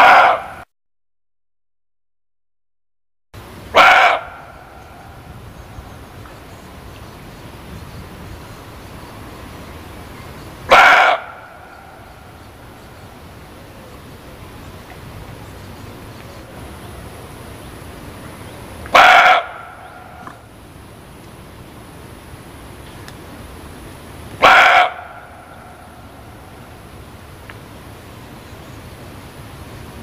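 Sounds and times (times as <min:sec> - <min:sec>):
deer barking: 0:00.0 - 0:00.6, 0:03.7 - 0:04.7, 0:10.7 - 0:12.0, 0:18.9 - 0:20.4, 0:24.4 - 0:25.9
steady background hiss: 0:03.4 - 0:30.0.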